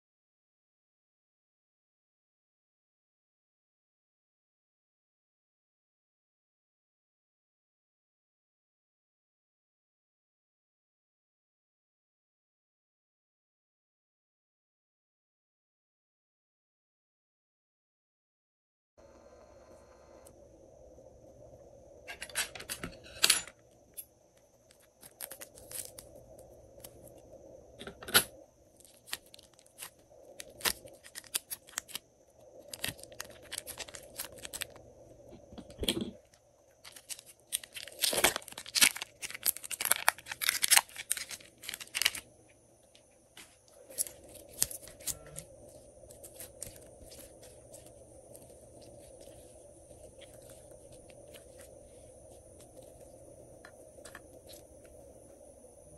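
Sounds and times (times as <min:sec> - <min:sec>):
crinkling plastic: 0:24.5 - 0:27.2, 0:28.7 - 0:34.8, 0:35.5 - 0:42.3, 0:43.4 - 0:54.8.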